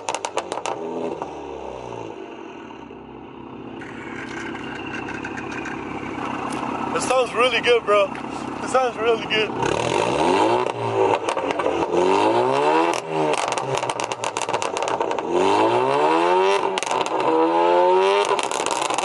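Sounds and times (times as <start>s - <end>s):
exhaust pops and crackles: 0.0s - 1.3s, 3.8s - 12.0s, 12.7s - 15.4s, 16.5s - 17.4s, 18.2s - 19.0s
car engine revving: 0.0s - 19.0s.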